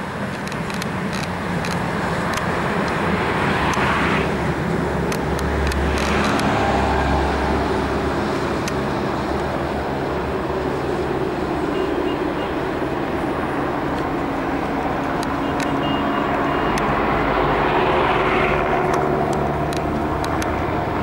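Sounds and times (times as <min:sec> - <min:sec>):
sharp clicks of wheels: 0:00.0 - 0:07.2, 0:13.4 - 0:21.0
rumble of train wheels on rails: 0:00.0 - 0:21.0.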